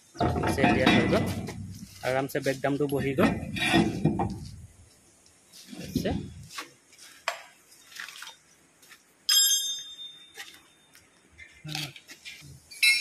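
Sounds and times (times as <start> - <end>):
ringing metal clank: 9.3 - 10.4, 12.7 - 13.0.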